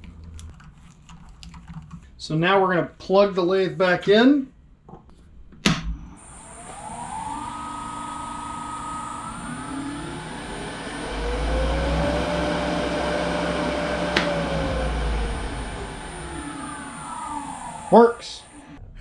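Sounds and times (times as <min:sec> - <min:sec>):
wood lathe motor whining: 0:06.0 - 0:18.8.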